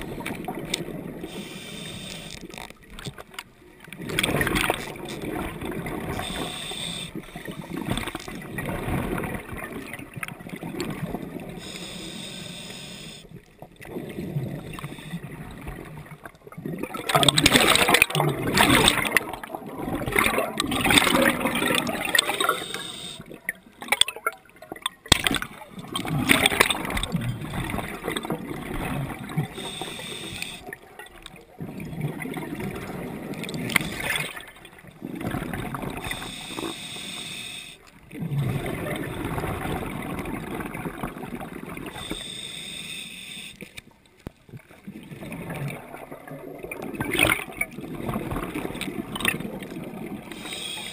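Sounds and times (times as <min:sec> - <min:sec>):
diver breathing through regulator: 0:01.2 - 0:02.5, 0:06.1 - 0:07.8, 0:11.6 - 0:13.3, 0:22.1 - 0:23.3, 0:29.5 - 0:30.7, 0:36.0 - 0:37.8, 0:41.9 - 0:43.7, 0:50.3 - 0:50.9
bubbles gurgling: 0:03.9 - 0:11.8, 0:13.7 - 0:36.8, 0:38.0 - 0:42.2, 0:44.5 - 0:50.7.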